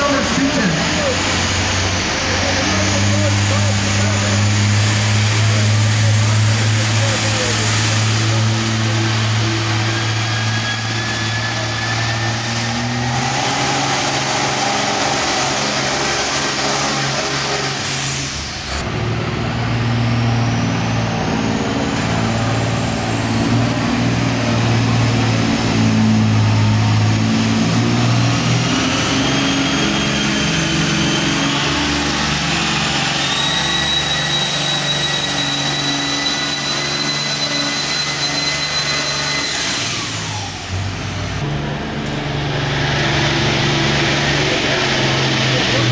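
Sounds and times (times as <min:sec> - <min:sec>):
diesel tractor engine under load: 0:00.0 - 0:45.9
rising turbo whine: 0:00.0 - 0:45.9
high turbo whistle: 0:08.6 - 0:18.8, 0:28.7 - 0:41.4.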